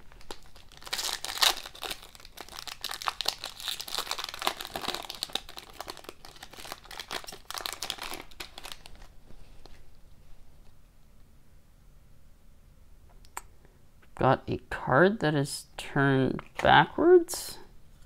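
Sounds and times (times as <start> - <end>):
foil wrapper tearing and crinkling: 0.0 - 9.1.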